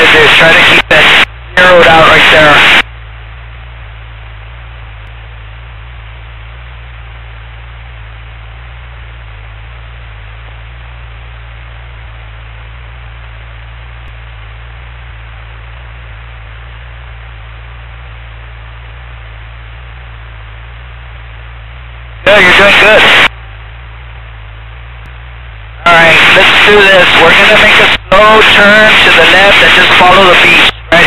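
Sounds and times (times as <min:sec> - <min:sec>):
intercom static hiss: 0:00.0 - 0:02.9, 0:22.2 - 0:23.3, 0:25.8 - 0:31.0
airplane engine drone: 0:00.0 - 0:31.0.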